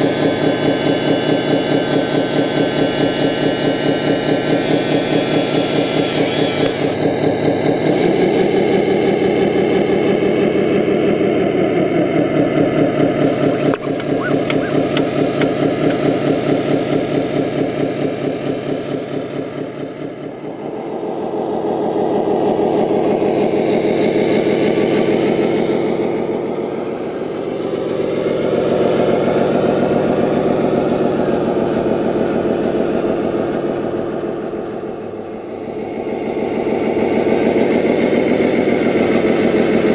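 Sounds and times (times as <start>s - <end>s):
simulated diesel engine idling: 0.0s - 39.9s
faint high whine: 13.2s - 20.9s.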